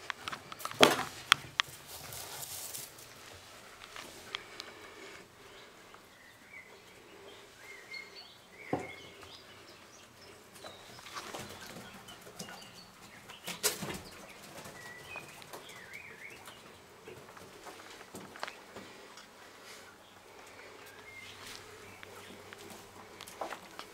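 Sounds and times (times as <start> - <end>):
rustling: 0.0 - 6.0
young quails peeping: 0.0 - 23.9.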